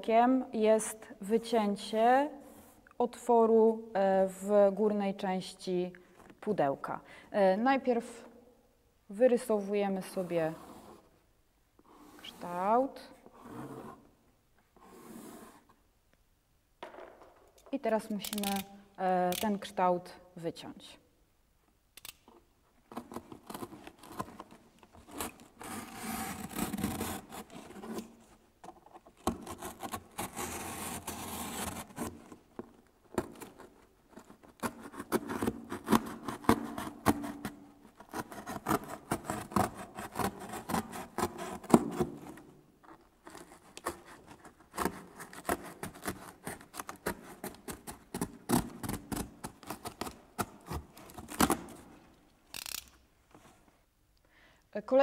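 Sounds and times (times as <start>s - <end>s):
box cutter sawing cardboard: 25.0s - 28.1s, 29.3s - 32.3s, 34.4s - 42.4s, 43.3s - 51.8s.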